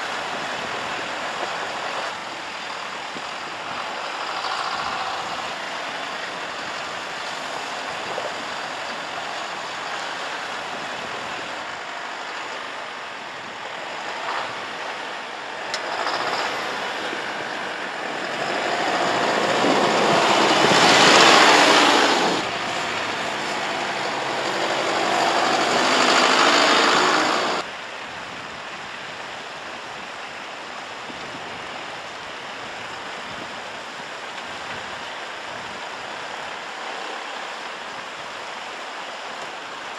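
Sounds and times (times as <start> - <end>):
background rush: 0.0 - 39.9
diesel truck engine running: 0.1 - 27.7.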